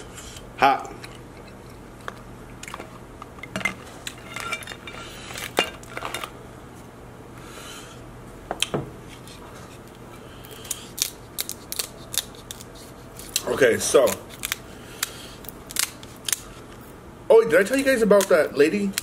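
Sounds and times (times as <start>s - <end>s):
scissors snipping through shell: 14.1s - 16.4s.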